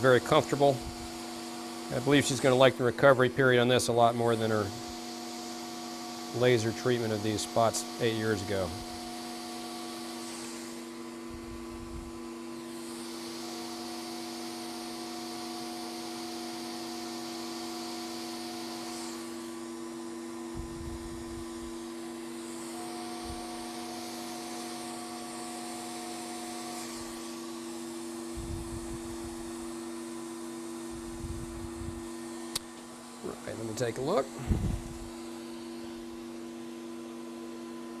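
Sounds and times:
low electrical hum: 0:30.8 - 0:37.9.

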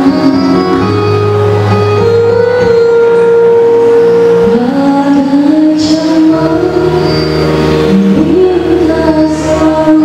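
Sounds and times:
musical accompaniment: 0:00.0 - 0:10.0
woman singing into microphone: 0:02.6 - 0:10.0.

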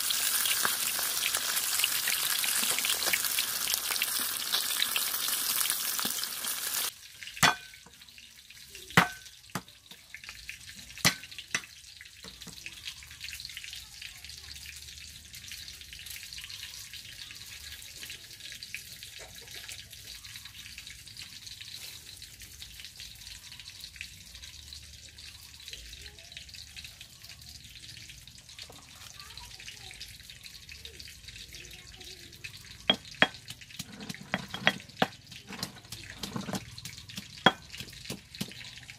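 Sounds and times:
fish sizzling in oil: 0:00.0 - 0:38.9
pestle striking stone mortar: 0:07.4 - 0:07.7, 0:09.0 - 0:09.7, 0:11.0 - 0:11.7, 0:32.9 - 0:38.6
cleaver knocking on wooden block: 0:32.9 - 0:36.6.

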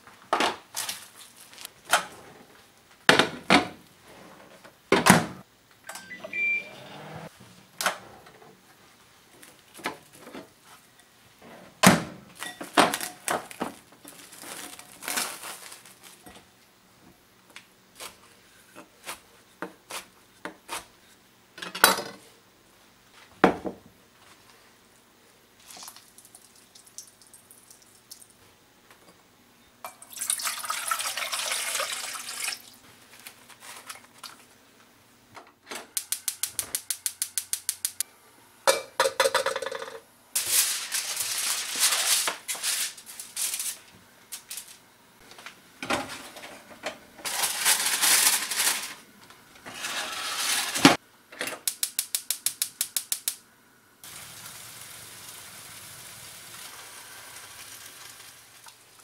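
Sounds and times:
tap water running: 0:30.0 - 0:32.8.

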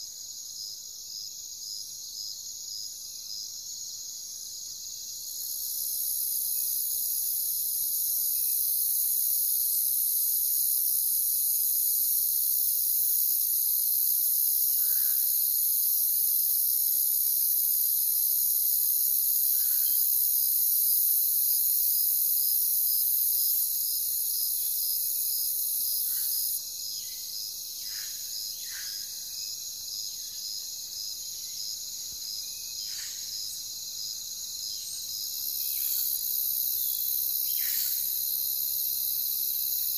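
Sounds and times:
high hissing insect chorus: 0:00.0 - 0:39.9
insects chirping: 0:00.0 - 0:39.9.

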